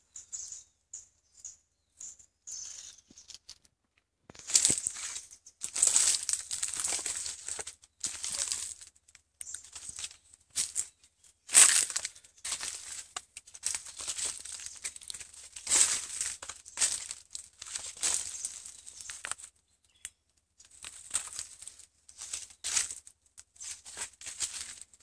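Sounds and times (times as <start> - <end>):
leaves rustling and crackling: 4.3 - 19.5, 20.6 - 25.0.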